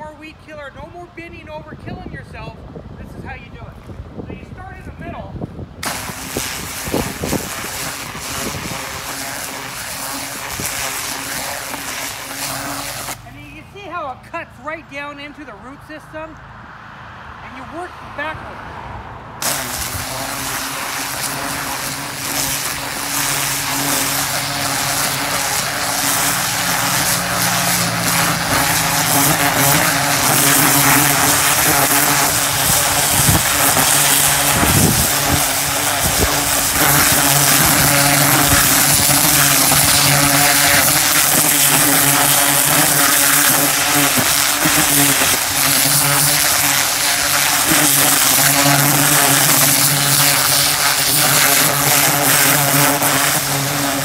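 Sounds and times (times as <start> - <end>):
water jet hissing into soil: 5.8 - 13.2, 19.4 - 54.0
pressure washer motor hum: 5.8 - 13.5, 19.4 - 54.0.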